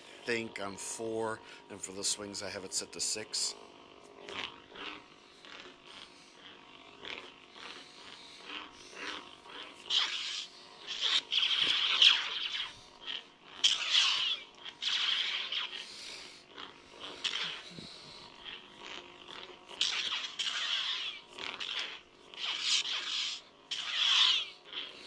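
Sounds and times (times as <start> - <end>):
faint steady hum: 0.0 - 25.0
lightsaber whooshing swings: 9.9 - 12.8, 13.6 - 15.9, 19.8 - 24.5.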